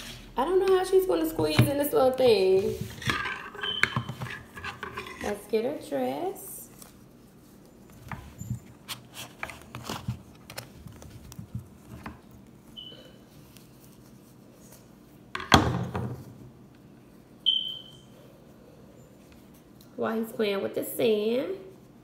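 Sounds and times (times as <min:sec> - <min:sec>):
short high-pitched beeps: 0:17.4 - 0:18.0.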